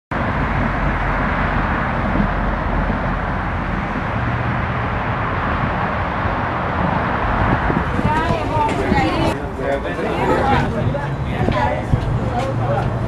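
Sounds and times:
road traffic rumble: 0.1 - 13.0.

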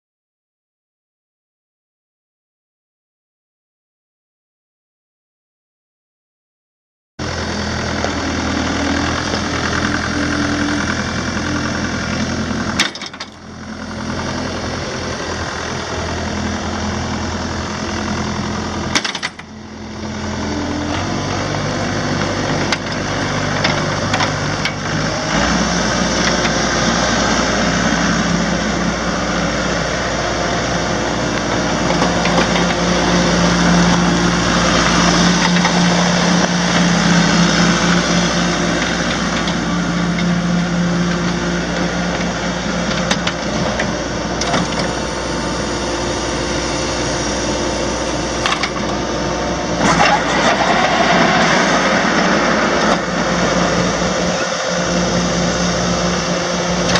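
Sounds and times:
diesel engine running: 7.2 - 56.9.

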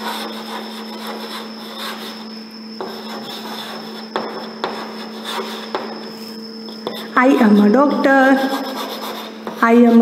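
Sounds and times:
chalk scratching on chalkboard: 0.0 - 5.9, 6.8 - 10.0
chalk tapping on board: 4.1 - 5.9.

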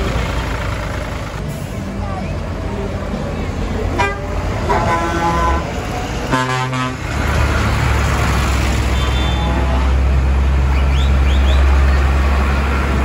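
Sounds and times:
tractor diesel engine rumbling: 0.0 - 13.0
horn toot: 4.0 - 7.1, 8.9 - 10.0.

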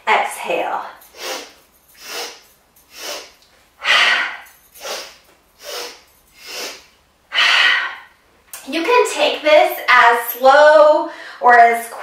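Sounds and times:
woman inhaling sharply: 1.1 - 8.1, 11.1 - 11.4
woman exhaling forcefully: 3.0 - 8.1.

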